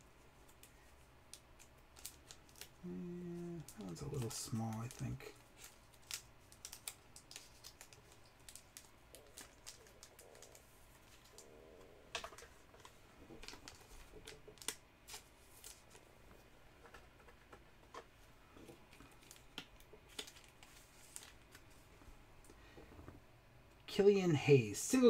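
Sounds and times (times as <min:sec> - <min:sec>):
plastic sleeve crinkling: 0:00.4 - 0:02.9, 0:03.5 - 0:11.5, 0:18.6 - 0:21.9.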